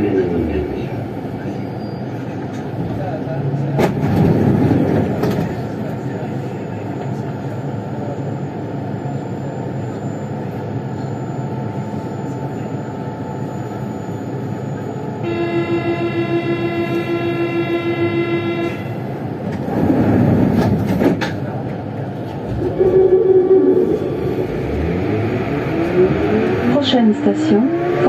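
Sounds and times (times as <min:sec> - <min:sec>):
train equipment hum: 0:00.0 - 0:27.4
pulsing buzzer tone: 0:15.2 - 0:18.9
rush of noise: 0:22.4 - 0:27.4.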